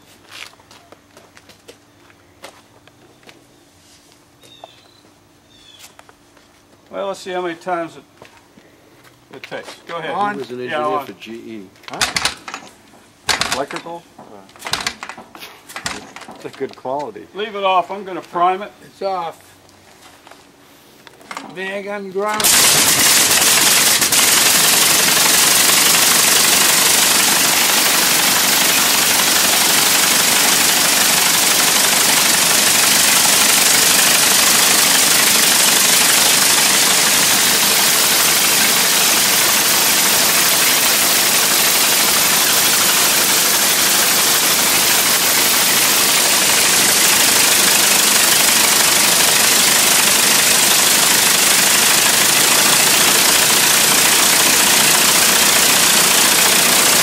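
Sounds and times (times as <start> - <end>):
aero engine running: 22.3 - 57.0.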